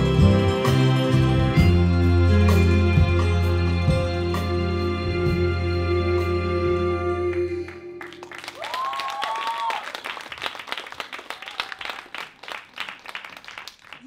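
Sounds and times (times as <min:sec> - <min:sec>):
dance music: 0:00.0 - 0:05.6
audience applause: 0:08.0 - 0:14.0
person whooping: 0:08.5 - 0:10.0, 0:11.3 - 0:12.0.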